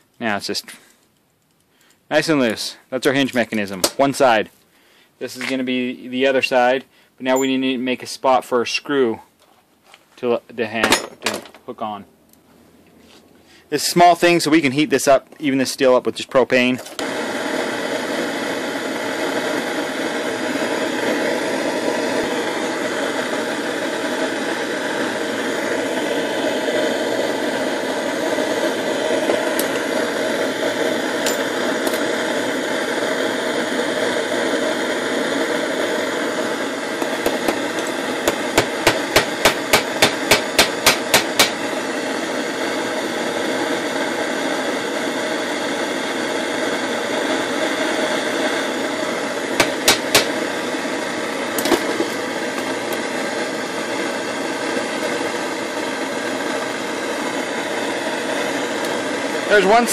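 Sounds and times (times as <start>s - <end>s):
torch flame hissing: 13.6s - 59.9s
hammer striking nail on vise: 38.6s - 41.6s, 49.6s - 50.3s.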